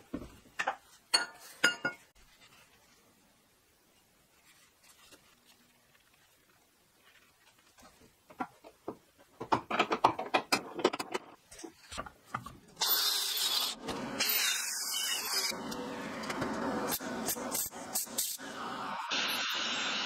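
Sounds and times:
tool hissing on metal: 16.6 - 20.0.

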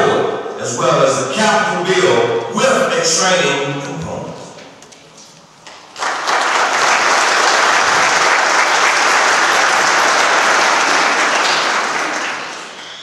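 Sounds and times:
audience applauding: 5.6 - 13.0.

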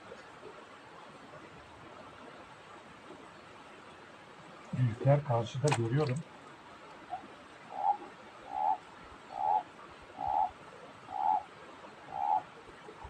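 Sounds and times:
animal calling rough notes: 7.1 - 11.5, 12.1 - 12.4.

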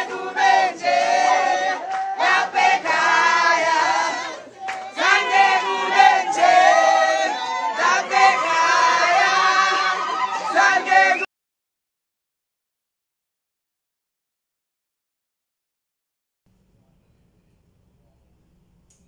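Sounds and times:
choir singing: 0.0 - 11.3.

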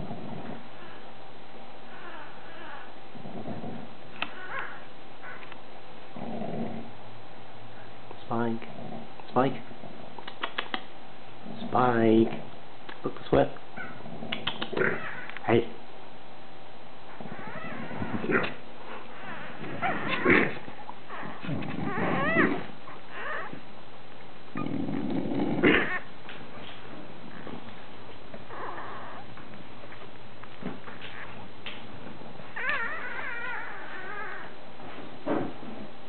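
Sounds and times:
puppies squeaking and whimpering: 1.9 - 2.9, 4.2 - 5.4, 13.8 - 15.4, 17.2 - 23.6, 25.7 - 26.1, 28.5 - 29.4, 30.8 - 31.4, 32.4 - 34.6.

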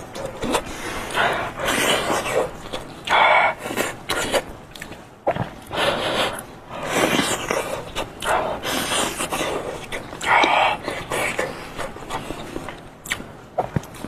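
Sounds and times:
noisy breaths through mouth: 0.4 - 4.2, 5.6 - 12.7.

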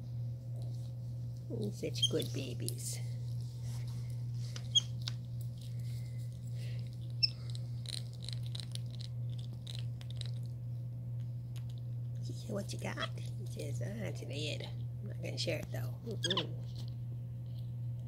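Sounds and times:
steady low hum: 0.0 - 18.0
monkey gnawing on a lid: 4.6 - 10.6.

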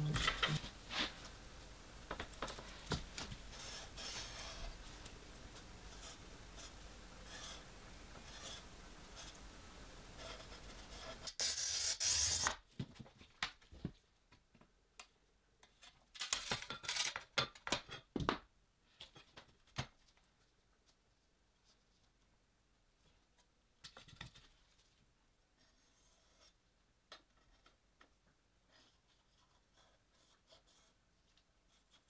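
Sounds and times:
faint steady hiss: 0.0 - 16.4.

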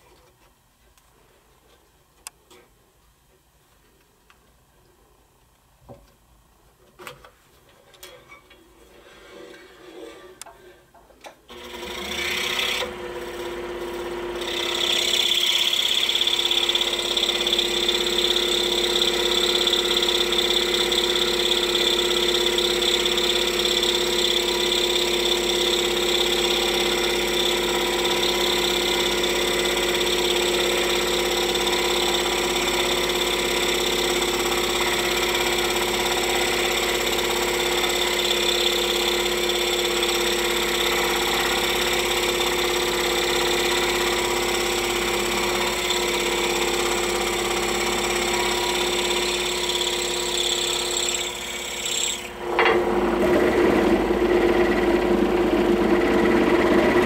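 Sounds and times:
scroll saw cutting wood: 11.5 - 57.0.

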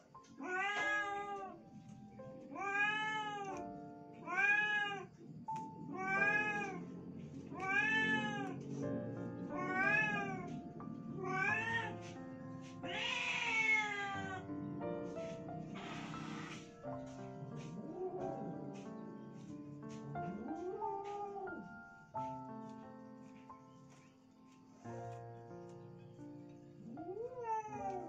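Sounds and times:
quiet background music: 0.0 - 28.0
cat meowing: 0.3 - 1.6, 2.4 - 5.2, 5.8 - 6.8, 7.5 - 8.6, 9.5 - 10.6, 11.2 - 12.2, 12.8 - 14.5, 27.0 - 28.0.

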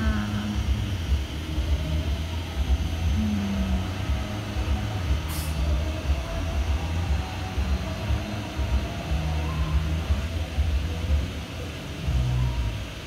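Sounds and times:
low rumbling background noise: 0.0 - 13.0
short hiss: 5.2 - 5.8.

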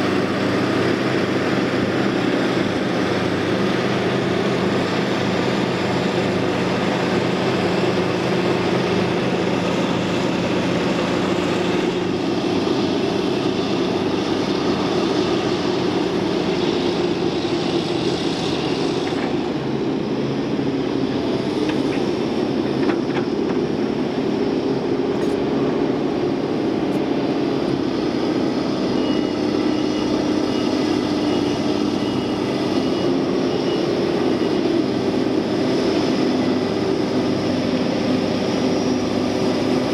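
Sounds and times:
diesel engines under load: 0.0 - 39.9.

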